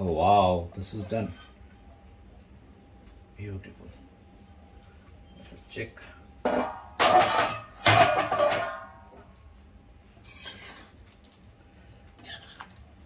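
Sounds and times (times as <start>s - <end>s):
pan lid clanking: 6.5s - 9.0s
ladle scraping and stirring curry: 10.1s - 13.0s.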